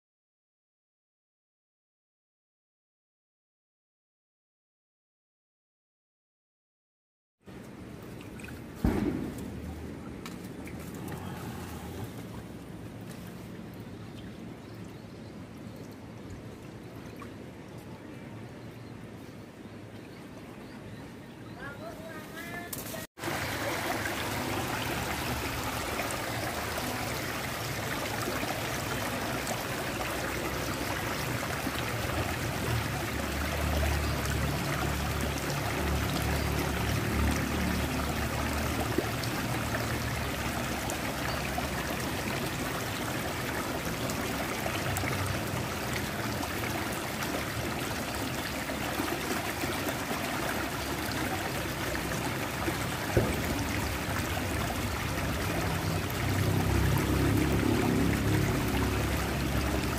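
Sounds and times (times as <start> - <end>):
water splashing from drain pipe: 22.7 - 59.9.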